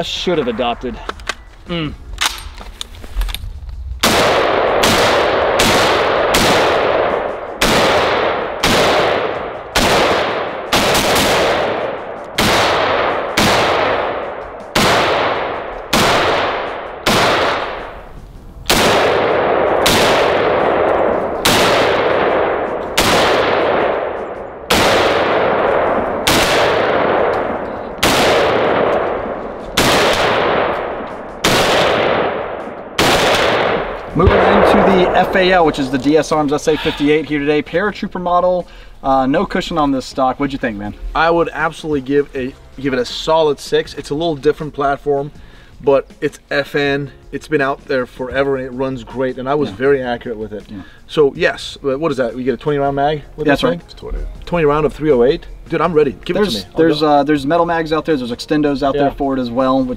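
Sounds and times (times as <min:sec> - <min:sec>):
rifle shots with rolling echo: 0:04.0 - 0:38.1.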